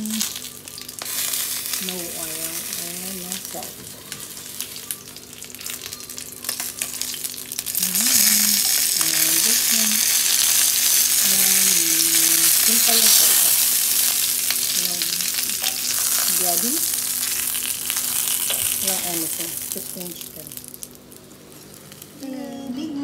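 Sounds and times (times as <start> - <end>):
chicken sizzling in a skillet: 0.0 - 22.5.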